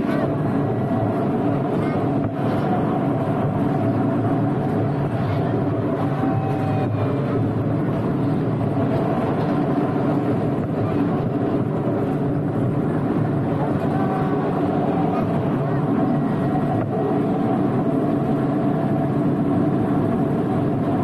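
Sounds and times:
small train engine drone: 0.0 - 21.0.

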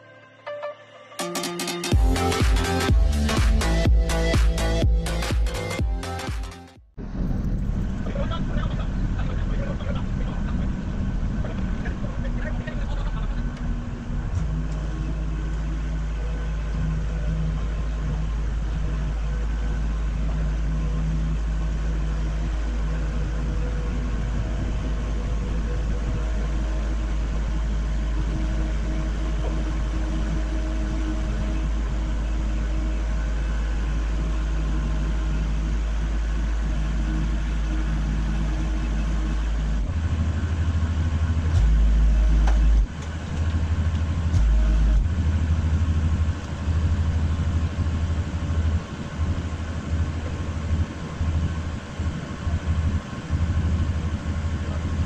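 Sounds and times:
equipment engine idling: 1.9 - 55.0.

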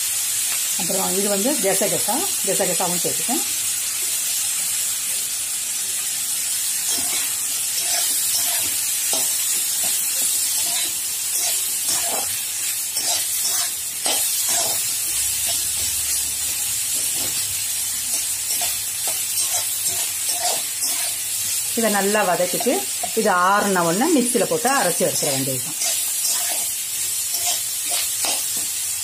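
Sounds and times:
food sizzling in oil: 0.0 - 29.0
spatula scraping and tapping: 25.7 - 26.6.

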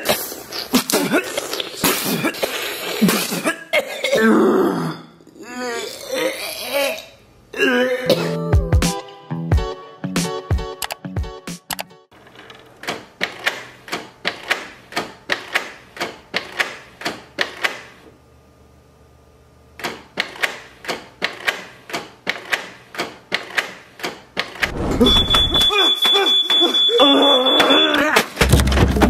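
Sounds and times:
thin high whistle: 24.8 - 27.9.

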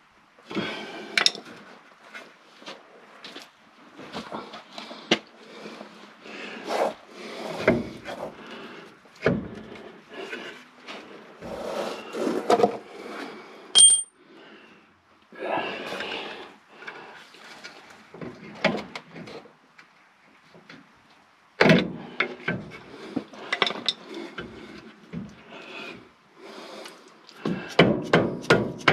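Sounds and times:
hand tools clanking on metal: 13.8 - 14.1
short high ping: 13.8 - 14.1.

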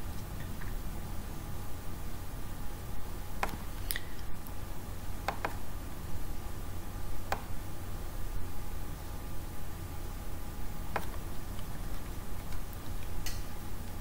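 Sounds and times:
steady low hum: 0.0 - 14.0
computer mouse clicks: 5.2 - 5.6, 7.3 - 7.5, 10.9 - 13.4.

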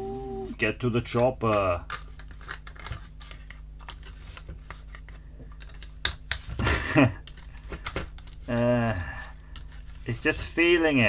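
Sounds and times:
short voiced sound from person: 0.0 - 0.6.

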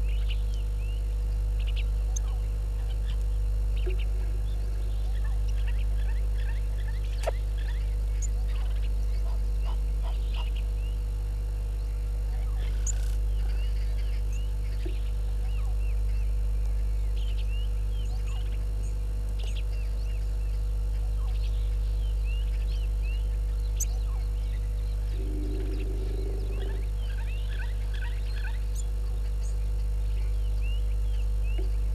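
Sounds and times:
steady low hum: 0.0 - 31.9
bird chirps: 12.6 - 16.3, 21.2 - 31.8.

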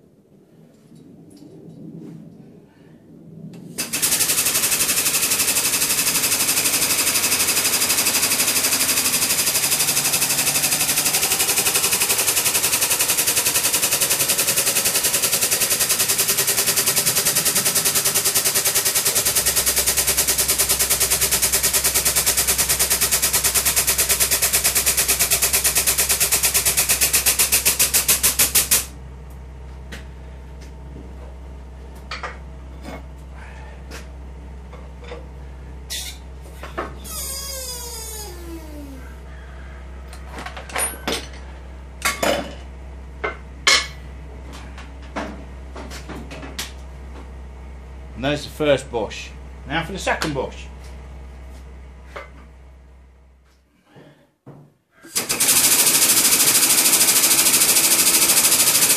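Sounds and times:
low steady hum: 0.0 - 3.9, 28.9 - 53.9
air pump rattling chatter: 3.8 - 28.9.

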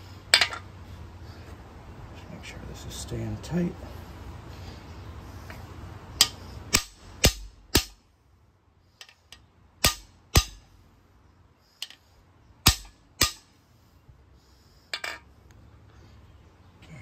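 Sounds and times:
hammer striking metal tool: 6.2 - 8.0, 9.8 - 10.6, 12.6 - 13.5.

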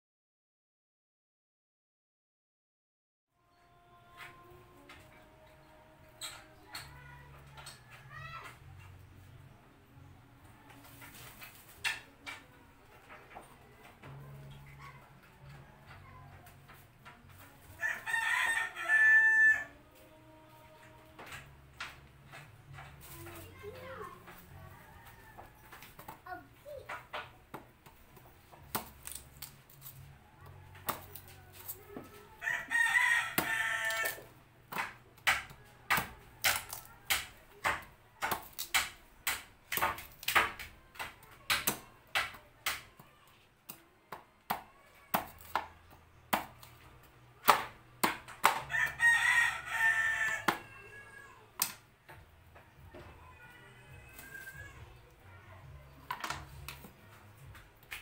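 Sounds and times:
rooster crowing: 17.8 - 19.8, 32.4 - 34.2, 48.7 - 51.4.

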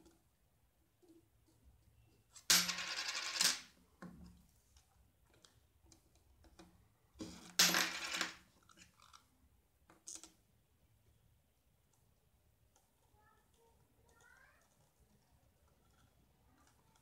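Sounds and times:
coin clattering on wooden table: 2.4 - 3.8, 7.2 - 8.5.

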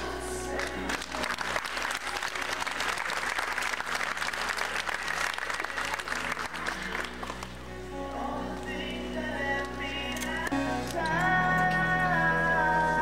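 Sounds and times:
background music: 0.0 - 13.0
audience applauding: 0.6 - 7.6.

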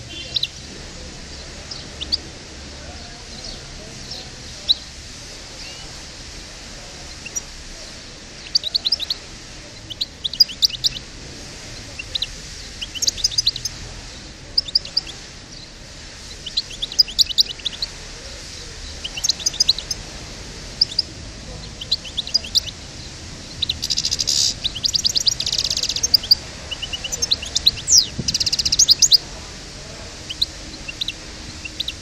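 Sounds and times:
goldfinch twittering chirps: 7.1 - 9.2, 9.8 - 11.1, 11.7 - 13.8, 14.5 - 20.1, 20.7 - 32.0.

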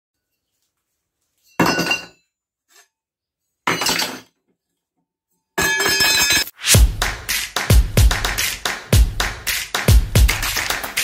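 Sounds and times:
music: 6.6 - 11.0.

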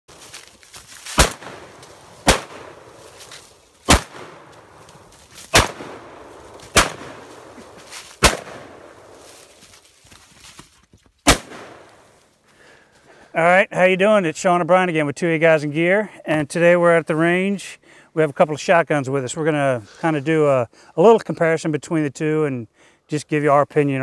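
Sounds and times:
shotgun shots with echo: 1.1 - 3.0, 3.8 - 4.8, 5.5 - 9.2, 11.3 - 12.0.

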